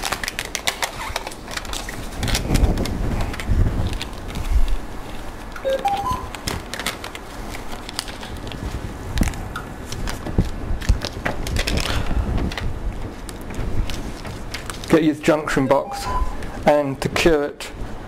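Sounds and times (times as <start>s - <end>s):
plastic film crackling: 0.0s - 5.6s, 6.3s - 15.1s.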